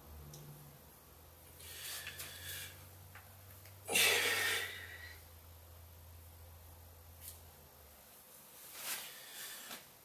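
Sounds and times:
man exhaling hard: 0:03.9 - 0:05.2.

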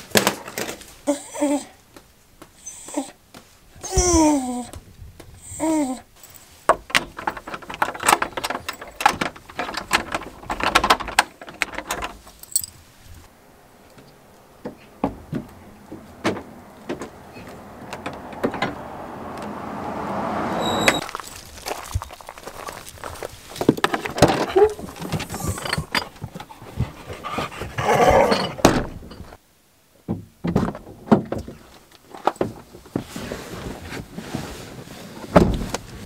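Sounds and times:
dog whining: 0:01.1 - 0:01.8, 0:02.6 - 0:03.2, 0:03.8 - 0:04.7, 0:20.6 - 0:21.0, 0:24.5 - 0:25.9
door latch rattling and knocking: 0:06.7 - 0:12.2
keys jangling: 0:12.4 - 0:12.8
rushing noise: 0:13.3 - 0:21.9.

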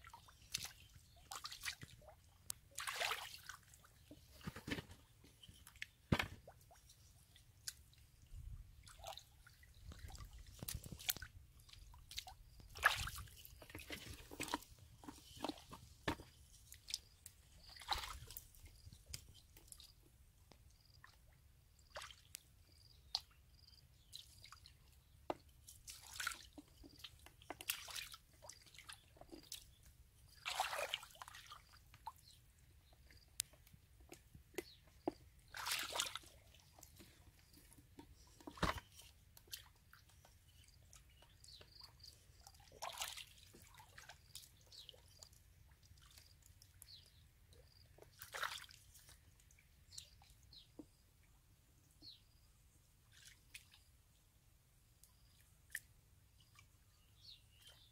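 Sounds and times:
water sloshing: 0:00.0 - 0:20.0, 0:25.8 - 0:32.0, 0:34.0 - 0:45.2.

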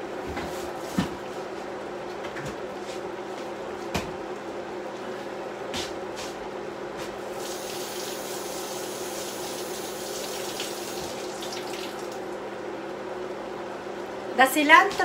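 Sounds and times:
water running from tap: 0:07.3 - 0:12.4.

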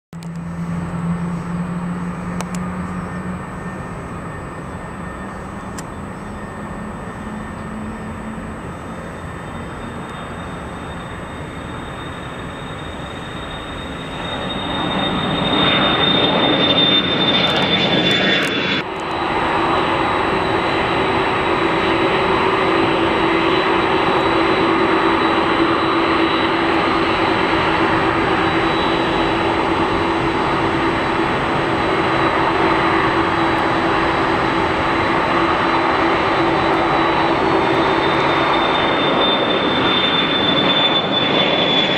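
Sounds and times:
high fan whine: 0:00.2 - 0:17.2
jet engines roaring: 0:00.2 - 0:41.9.

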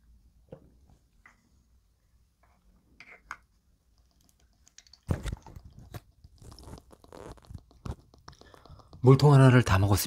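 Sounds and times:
plastic clicks and knocks: 0:03.0 - 0:09.5.

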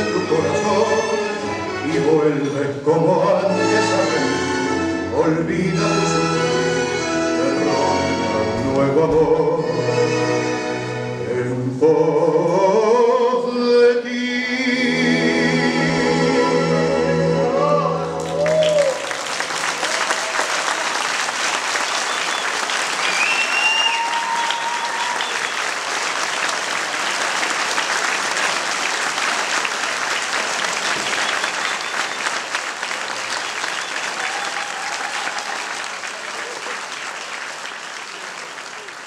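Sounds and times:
audience clapping: 0:18.2 - 0:39.0
calls from crowd: 0:18.2 - 0:39.0.

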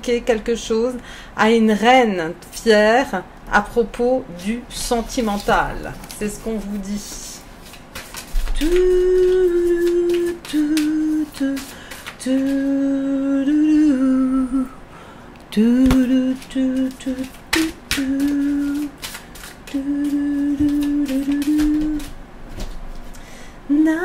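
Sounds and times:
cards clicking and tapping: 0:07.6 - 0:12.6, 0:15.9 - 0:22.1
woman humming: 0:08.6 - 0:11.6, 0:12.2 - 0:14.8.

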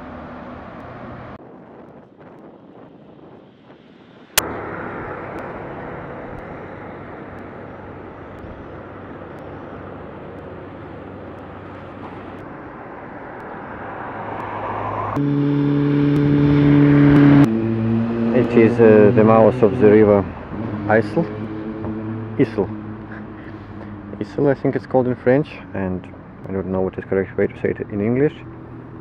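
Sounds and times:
road traffic noise: 0:00.0 - 0:29.0
motorcycle engine passing: 0:10.7 - 0:29.0.

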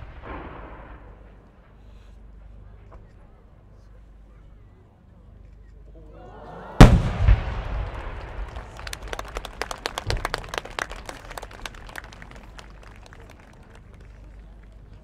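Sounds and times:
firework shell boom: 0:06.8 - 0:08.7.

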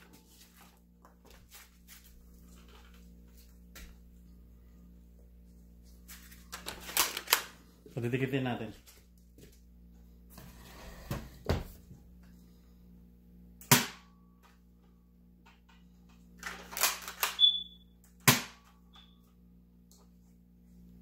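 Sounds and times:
toy blaster plastic clicks and snaps: 0:16.4 - 0:17.5.

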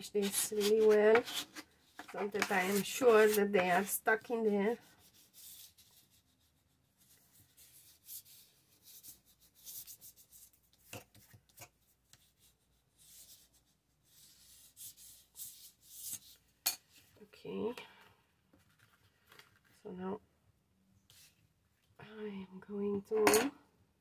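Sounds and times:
scratchy rubbing on paper: 0:00.0 - 0:11.3, 0:12.1 - 0:16.4.

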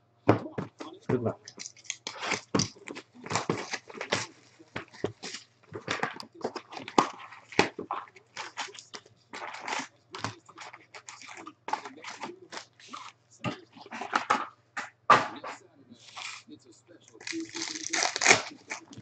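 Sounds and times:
foil packs crinkling: 0:00.8 - 0:14.3, 0:17.2 - 0:19.0
cardboard box tearing: 0:02.0 - 0:05.5, 0:09.4 - 0:12.7, 0:17.2 - 0:18.9.

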